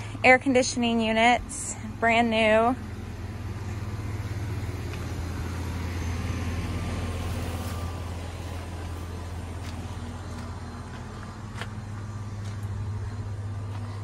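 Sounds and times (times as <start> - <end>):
air conditioner compressor hum: 0.0 - 14.0
condenser fan whooshing: 0.0 - 14.0
footsteps on gravel: 4.8 - 5.2, 7.2 - 14.0.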